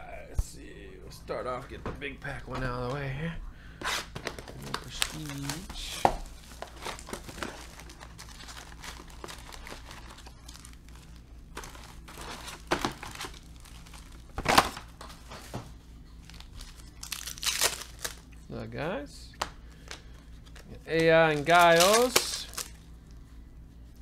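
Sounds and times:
wrapper and foil crinkling: 4.2 - 15.5, 16.2 - 18.2, 20.4 - 22.9.

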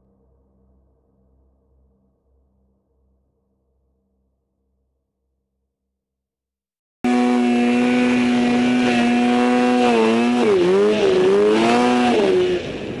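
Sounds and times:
snowmobile engine at high revs: 7.0 - 13.0.

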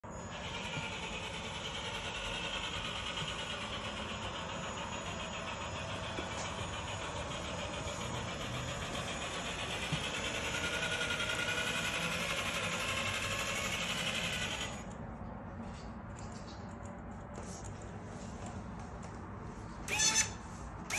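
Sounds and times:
toy truck driving on hard floor: 0.1 - 15.0, 19.8 - 20.9.

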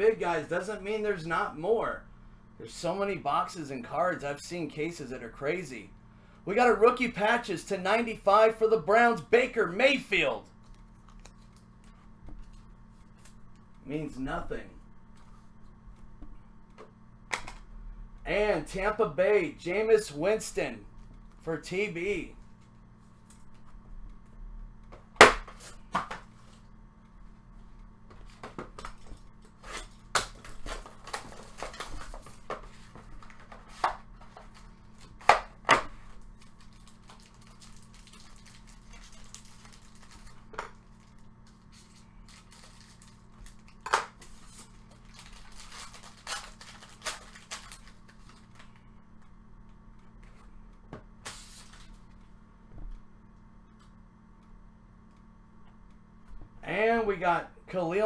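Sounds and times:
faint steady hum: 0.0 - 58.0
plastic wrapping crinkling: 36.0 - 48.8.

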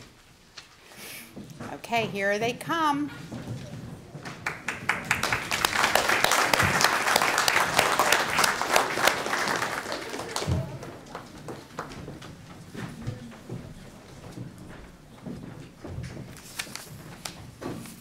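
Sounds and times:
audience applauding: 4.2 - 12.2.

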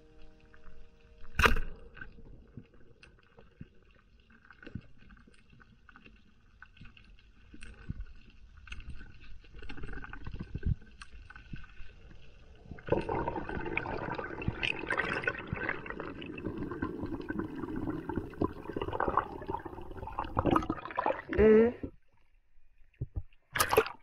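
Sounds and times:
underwater clicks and knocks: 22.9 - 24.0.

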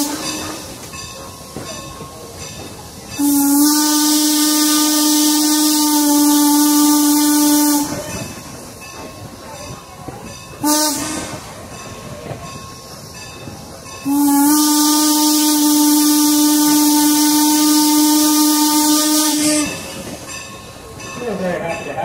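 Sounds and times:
steam locomotive whistle: 0.0 - 0.8, 3.2 - 8.3, 10.6 - 11.6, 14.0 - 20.1
hiss of steam: 0.0 - 21.0
train rolling along track: 0.0 - 22.0.

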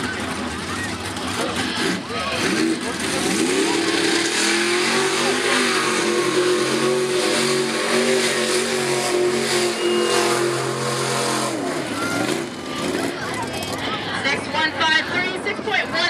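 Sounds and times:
truck engine running hard: 0.0 - 16.0.

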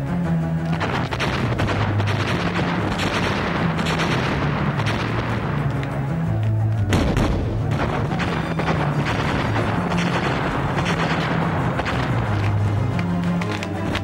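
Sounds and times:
dramatic background music: 0.0 - 14.0
cartoon gunfire: 0.8 - 5.4, 6.9 - 12.2
explosion blasts: 0.8 - 5.8, 6.9 - 12.4.

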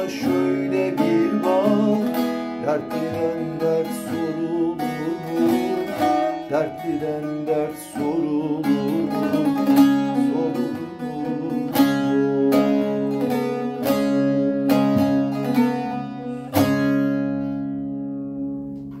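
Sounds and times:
long-necked lute plucked: 0.0 - 19.0.

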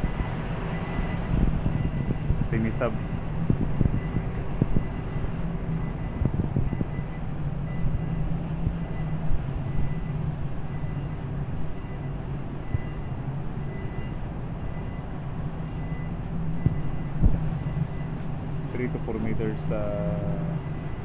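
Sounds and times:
ship engines droning: 0.0 - 21.0.

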